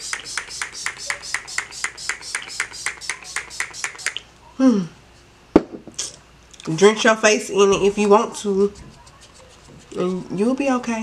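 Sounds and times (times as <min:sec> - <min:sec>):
spray bottle hissing sprays: 0:00.0 - 0:04.2.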